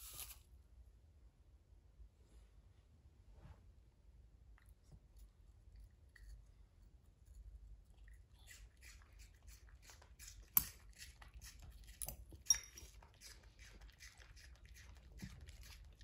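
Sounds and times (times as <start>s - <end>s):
dog chewing with mouth smacks: 4.6s - 16.0s
metal fork clinking on bowl: 10.5s - 10.8s, 11.9s - 13.3s.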